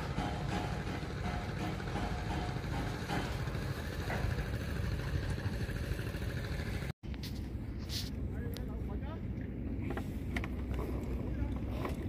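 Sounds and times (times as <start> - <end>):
boat engine idling: 0.0 - 6.9.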